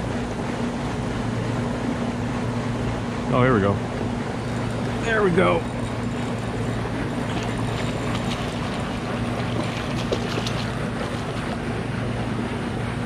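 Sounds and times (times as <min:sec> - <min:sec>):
steady low hum: 0:00.0 - 0:13.0
water lapping at kayak: 0:05.8 - 0:11.8.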